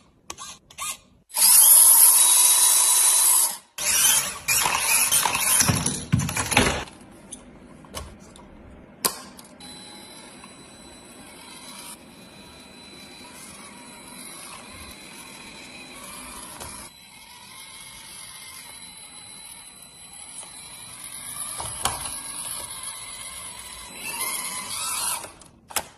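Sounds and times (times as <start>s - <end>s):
electric motor whirring: 9.6s - 25.5s.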